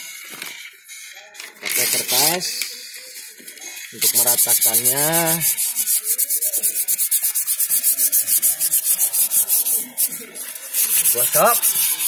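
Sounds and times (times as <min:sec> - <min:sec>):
paper pad scrubbing metal: 0:04.0 - 0:12.0.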